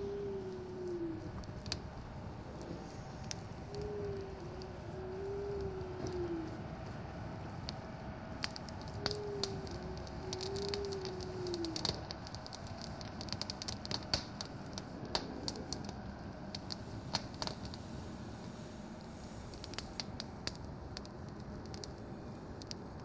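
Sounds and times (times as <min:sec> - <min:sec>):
wood fire crackling: 0:00.0 - 0:23.0
soft wavering whistle: 0:02.5 - 0:06.6, 0:09.0 - 0:12.0.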